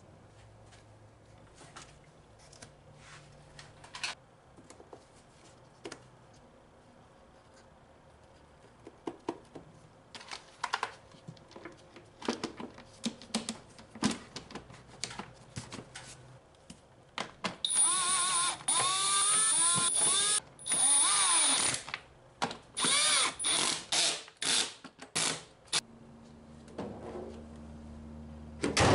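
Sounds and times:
cordless driver motor whine: 17.7s - 21.8s.

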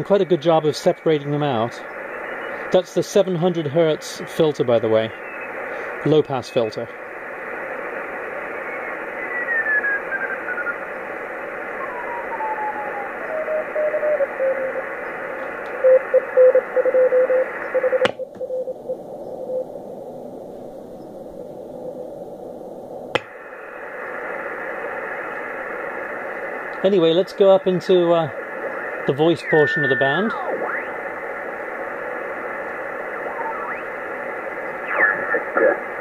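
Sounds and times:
radio band hiss: 0.0s - 19.7s, 21.3s - 36.0s
morse code tone: 15.8s - 18.7s, 29.0s - 31.0s.

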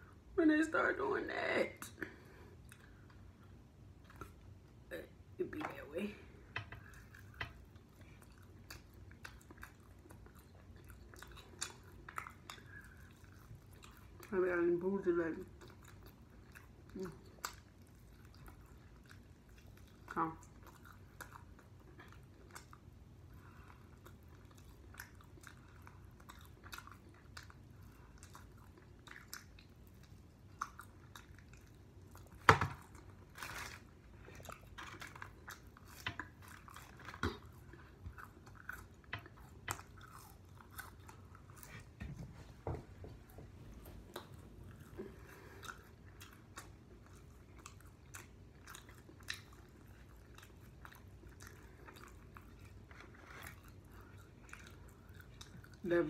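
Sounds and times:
biting and chewing chicken wings: 15.5s - 42.2s, 43.3s - 56.0s.

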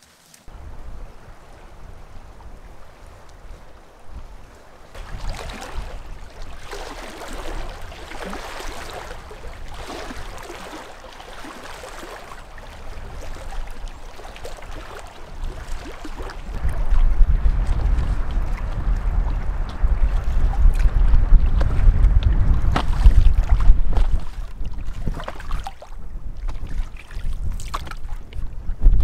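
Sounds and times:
small waves lapping at shore: 0.0s - 21.8s, 22.7s - 28.4s
wind buffeting microphone: 0.5s - 29.0s.

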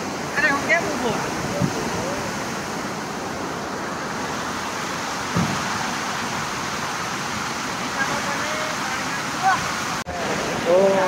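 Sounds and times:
river water rushing over weir: 0.0s - 11.0s
short thump: 5.3s - 5.7s.

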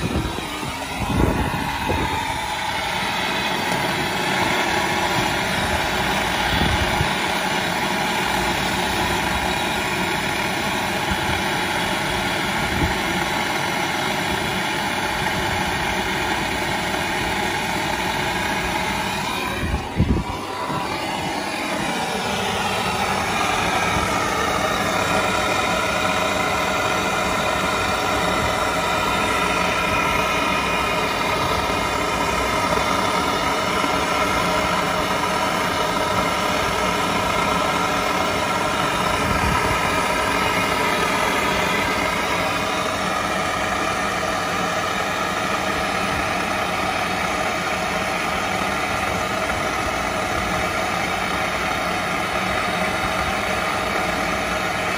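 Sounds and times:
motor droning hum: 0.0s - 54.9s.

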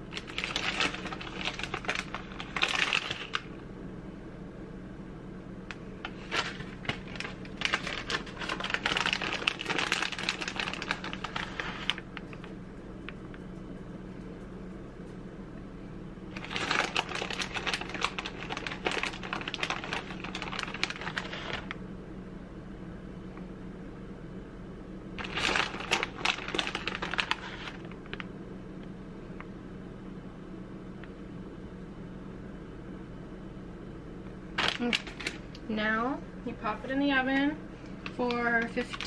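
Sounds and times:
plastic bags crinkling: 0.0s - 3.6s, 6.0s - 12.5s, 16.3s - 21.8s, 25.2s - 28.3s, 34.6s - 35.5s, 38.0s - 39.0s
low steady hum: 0.0s - 39.0s.

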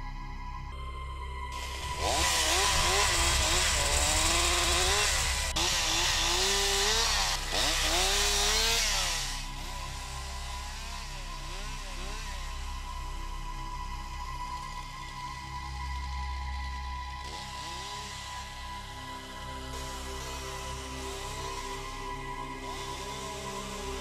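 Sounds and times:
chainsaw cutting through log: 1.5s - 12.7s, 16.0s - 24.0s.

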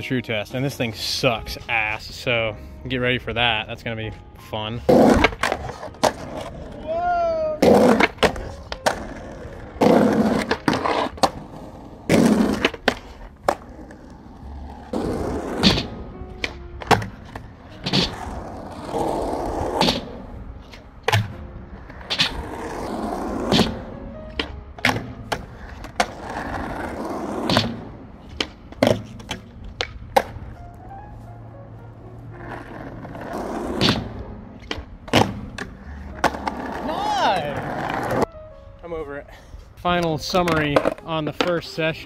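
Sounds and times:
skateboard rolling on concrete: 0.0s - 42.0s
skateboard clacks and slaps: 4.9s - 14.1s, 14.9s - 18.9s, 19.6s - 22.8s, 23.4s - 30.6s, 32.4s - 38.3s, 39.9s - 41.6s.

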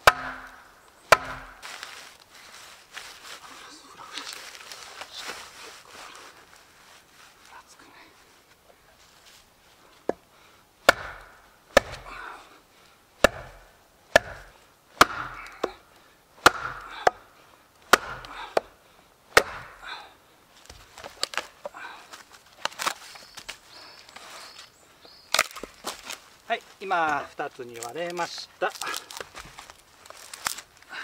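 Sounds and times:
wooden baton knocking on hatchet: 0.0s - 1.5s, 14.2s - 14.4s
wood cracking: 0.0s - 2.3s, 10.9s - 12.3s, 13.2s - 15.8s, 16.4s - 17.2s, 17.8s - 18.7s, 19.3s - 19.9s, 20.6s - 24.3s, 25.3s - 30.9s.

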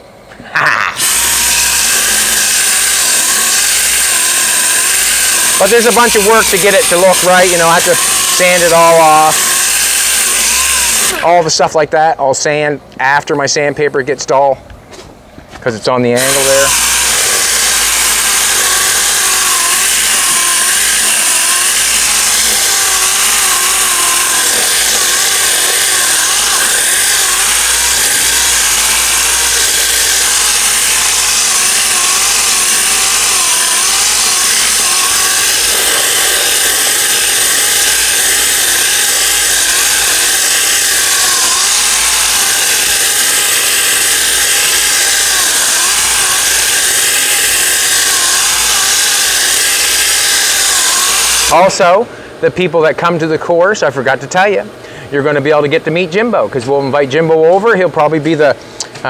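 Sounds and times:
orbital sander grinding: 0.6s - 11.5s, 16.0s - 52.0s.

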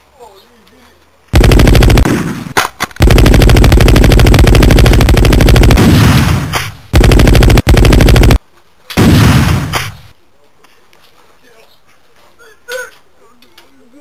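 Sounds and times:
machine-gun fire: 1.3s - 8.4s, 9.0s - 10.0s.

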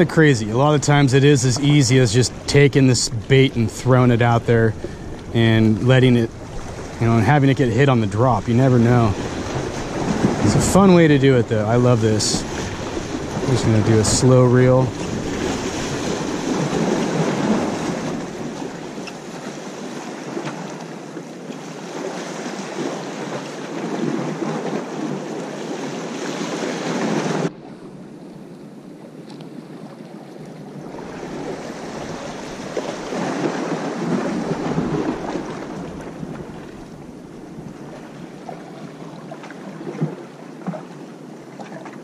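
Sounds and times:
wind buffeting microphone: 0.0s - 19.1s, 30.6s - 38.1s
waves splashing against rocks: 0.0s - 27.8s, 29.2s - 42.0s.

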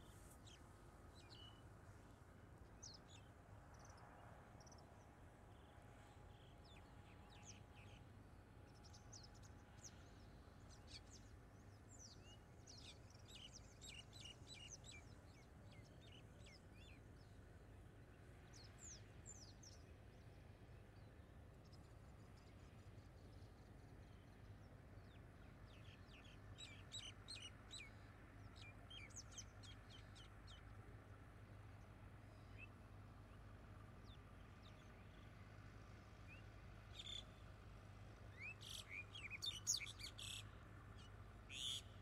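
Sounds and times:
low steady background hum: 0.0s - 42.0s
small birds chirping: 38.3s - 42.0s.

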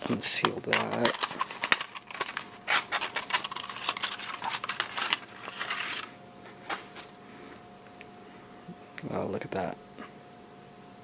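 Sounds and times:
packaging crackling and clicking: 0.4s - 6.1s.

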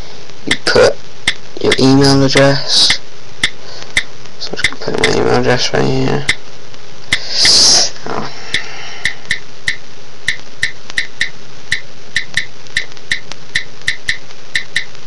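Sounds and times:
on-screen keyboard ticks: 0.5s - 1.9s, 2.9s - 5.2s, 8.5s - 15.0s.

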